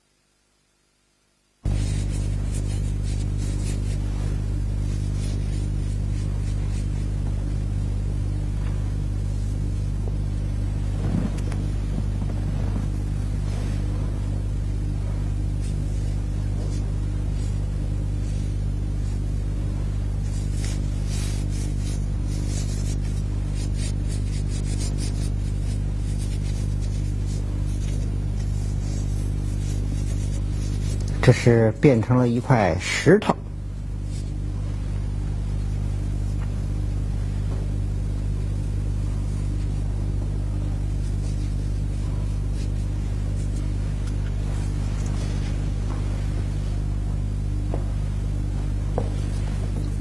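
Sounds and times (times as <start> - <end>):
steady low hum: 0.0 - 50.0
faint crackles: 8.5 - 31.5.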